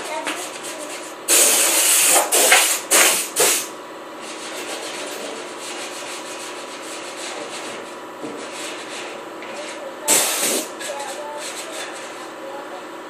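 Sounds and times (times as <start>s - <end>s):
steady rubbing on sheet metal: 0.0s - 12.8s
compressed-air tool hissing blasts: 1.3s - 3.7s, 10.1s - 10.8s.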